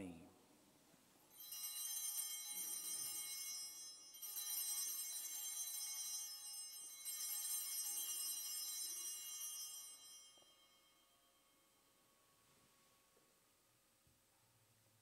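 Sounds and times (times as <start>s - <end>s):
altar bells ringing: 1.3s - 12.4s.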